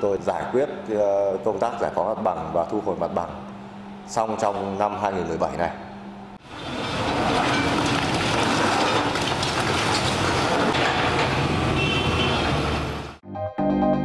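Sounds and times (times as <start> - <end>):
excavator running: 6.4 - 13.2
bucket breaking brick and concrete: 6.6 - 12.0
rubble clattering down: 6.8 - 11.6.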